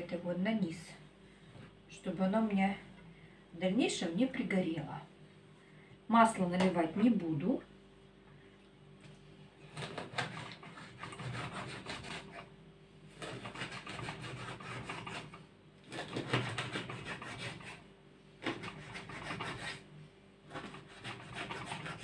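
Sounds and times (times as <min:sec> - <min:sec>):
knife sawing through fish: 0:09.8 - 0:12.5, 0:13.2 - 0:17.8, 0:18.4 - 0:19.9, 0:20.5 - 0:22.0.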